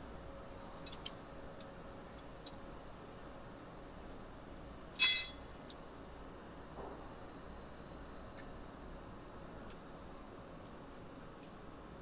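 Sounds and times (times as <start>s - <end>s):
ringing metal clank: 5.0s - 5.4s.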